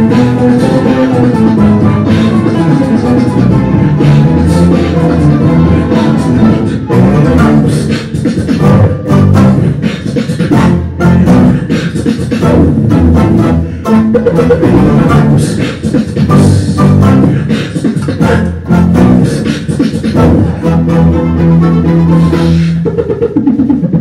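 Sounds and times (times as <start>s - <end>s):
plucked-string folk orchestra: 0.0s - 7.8s, 20.2s - 22.8s
beatboxing into microphone: 0.0s - 24.0s.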